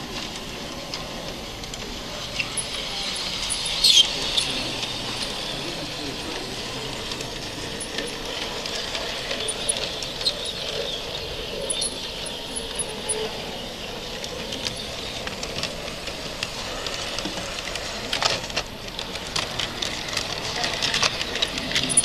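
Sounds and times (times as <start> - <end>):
model steam train hiss: 0.0 - 22.0
small clicks and ticks: 11.6 - 13.3.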